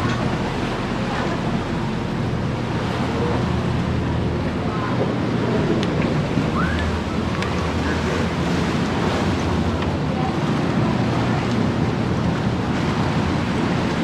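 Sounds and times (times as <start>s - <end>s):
boat engine running: 0.0s - 14.0s
water rushing past hull: 0.0s - 14.0s.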